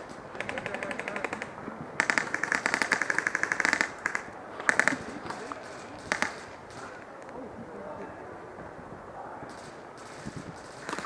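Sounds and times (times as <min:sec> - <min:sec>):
airsoft guns firing full auto: 0:00.0 - 0:07.0, 0:09.5 - 0:11.0.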